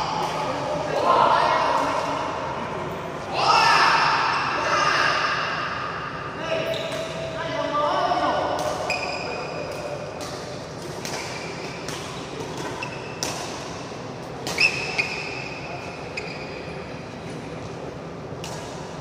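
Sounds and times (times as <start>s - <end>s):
shoes squeaking on court floor: 6.6s - 7.3s, 8.8s - 10.0s, 11.1s - 13.5s, 14.4s - 16.9s.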